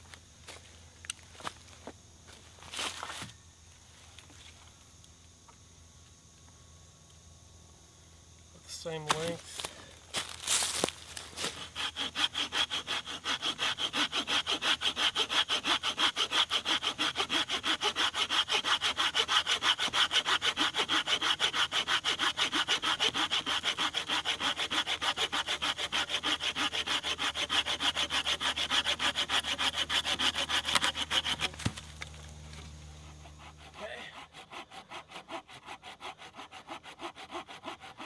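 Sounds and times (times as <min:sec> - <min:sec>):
hand saw cutting wood: 0:08.8 - 0:38.0.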